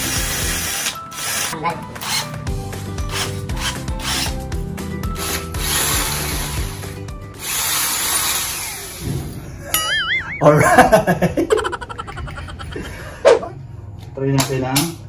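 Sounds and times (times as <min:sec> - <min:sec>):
drill grinding into concrete: 0:05.2 - 0:09.1.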